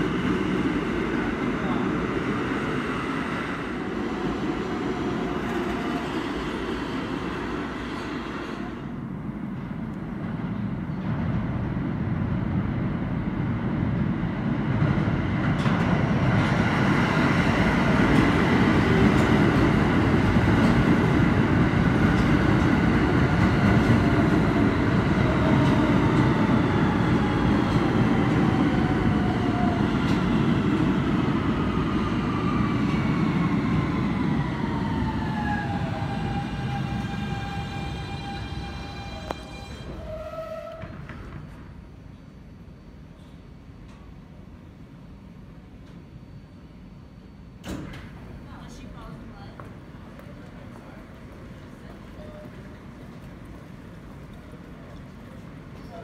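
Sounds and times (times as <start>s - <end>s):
subway train wheels rumbling: 0.0s - 56.0s
train motor whine falling: 35.9s - 41.6s.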